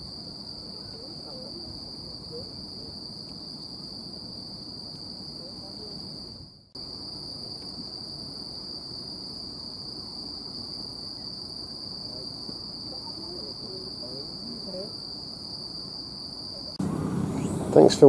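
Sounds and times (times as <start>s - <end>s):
crickets chirping: 0.0s - 18.0s
low background hum: 16.8s - 18.0s.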